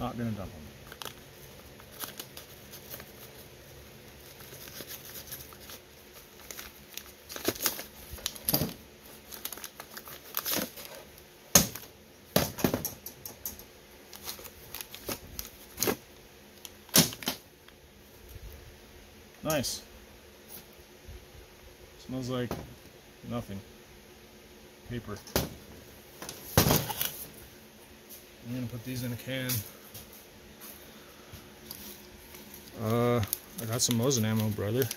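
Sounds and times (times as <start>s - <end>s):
paper rustling: 0.8s - 11.1s, 31.6s - 34.9s.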